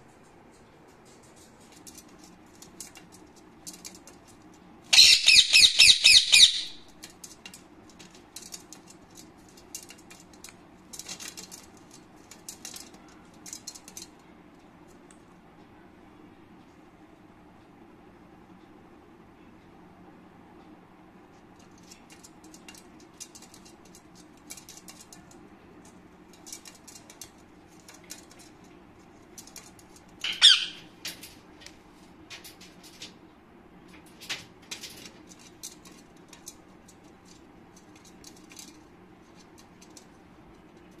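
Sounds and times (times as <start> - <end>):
beak and feet tapping wire: 0.0 - 15.2, 21.3 - 41.0
low steady hum: 0.0 - 41.0
parakeet squawk: 4.9 - 6.8, 30.2 - 30.9.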